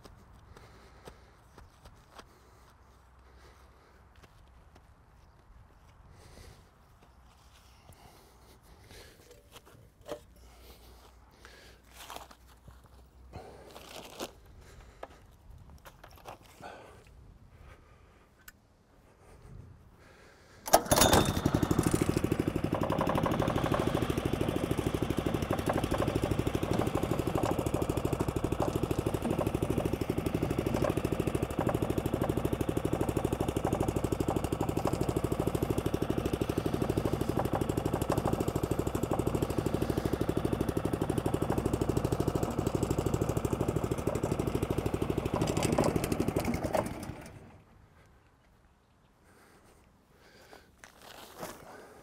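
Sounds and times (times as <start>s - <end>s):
mower petrol engine running: 20.6s - 47.8s.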